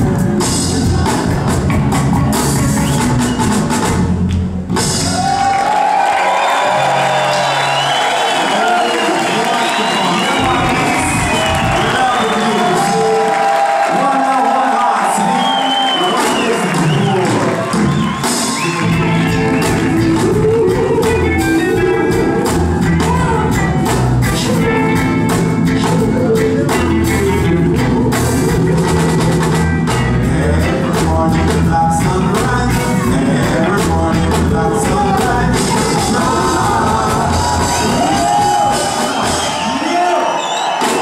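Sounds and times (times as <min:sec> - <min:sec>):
bass line: 0:00.0 - 0:05.6, 0:10.2 - 0:13.2, 0:16.3 - 0:39.6
reggae band playing: 0:00.0 - 0:41.0
person singing: 0:10.0 - 0:17.5, 0:18.4 - 0:39.3.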